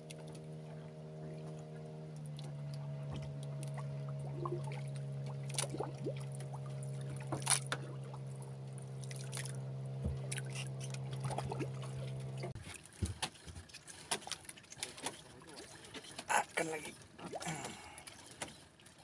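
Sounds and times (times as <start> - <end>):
boat engine idling: 0.0 - 12.6.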